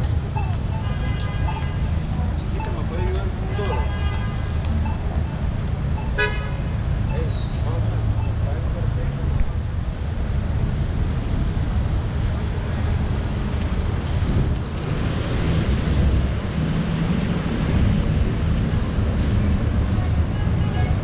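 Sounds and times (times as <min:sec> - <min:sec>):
city street traffic: 0:00.0 - 0:21.0
wind rumbling on microphone: 0:06.7 - 0:21.0.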